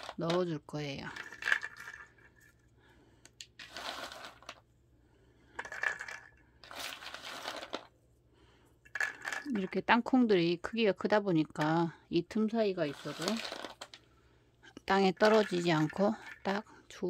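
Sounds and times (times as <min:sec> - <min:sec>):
peanuts rattling onto plastic tray: 0:00.0 - 0:00.5, 0:01.1 - 0:02.5, 0:03.5 - 0:04.6, 0:05.6 - 0:07.9, 0:08.9 - 0:09.8, 0:12.8 - 0:14.0, 0:15.0 - 0:16.6.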